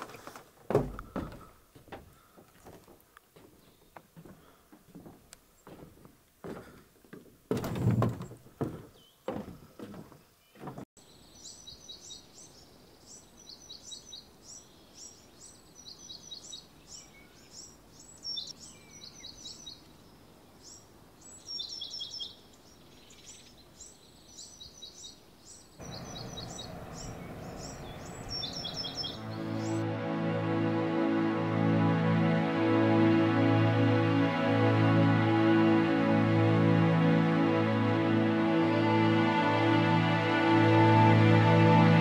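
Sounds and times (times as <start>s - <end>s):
wooden knocks and thumps: 0.0s - 10.8s
songbirds chirping: 0.0s - 42.0s
distant motorboat hum: 25.8s - 29.8s.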